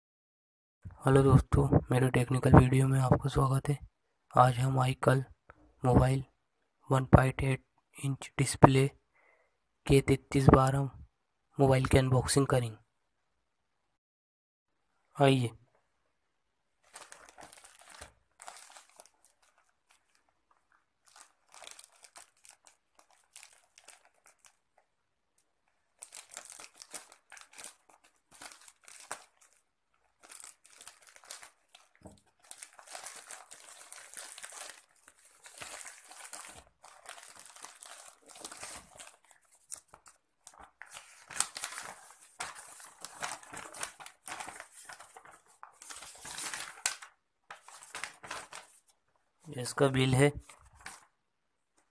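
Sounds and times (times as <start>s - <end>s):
paper rustling: 16.8s - 24.9s, 25.6s - 49.2s, 50.0s - 51.1s
plastic bag crinkling and tearing: 16.8s - 48.9s, 50.3s - 51.1s.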